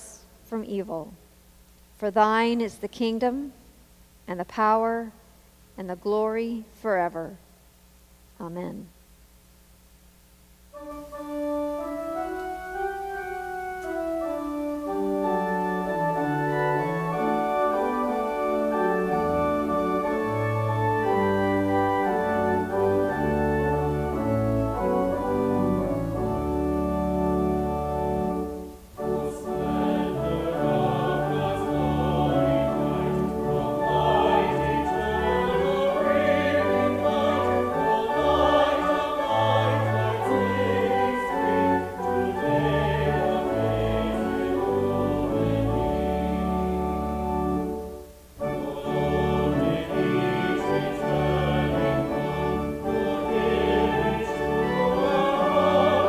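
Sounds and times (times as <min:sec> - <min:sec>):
church organ chords: 0:10.7 - 0:56.0
group singing a hymn: 0:29.0 - 0:47.0, 0:48.4 - 0:56.0.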